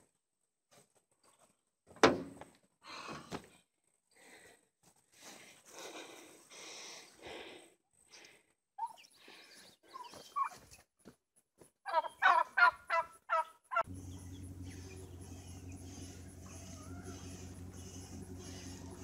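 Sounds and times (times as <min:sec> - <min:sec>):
poultry calling: 0:11.9 - 0:19.0
low engine hum: 0:13.8 - 0:19.0.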